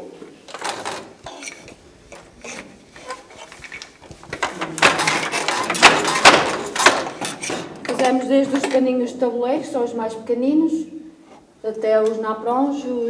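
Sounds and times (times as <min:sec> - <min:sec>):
wooden loom knocks and rattles: 0:00.5 - 0:08.8.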